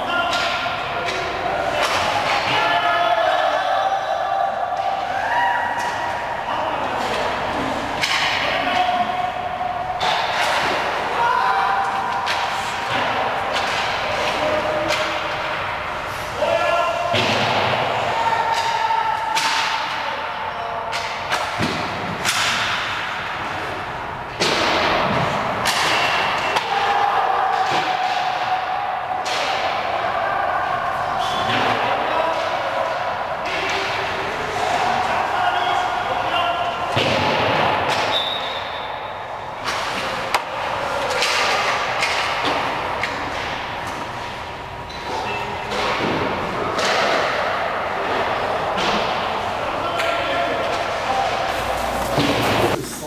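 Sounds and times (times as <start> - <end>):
echoing arena noise: 0.0 - 53.0
hockey sticks cracking against pucks: 0.3 - 2.7, 6.8 - 8.8, 9.9 - 11.2, 11.8 - 16.4, 18.4 - 20.0, 20.9 - 23.7, 24.4 - 28.5, 39.6 - 53.0
puck cracking: 39.6 - 44.4
skate blades scraping ice: 50.9 - 53.0.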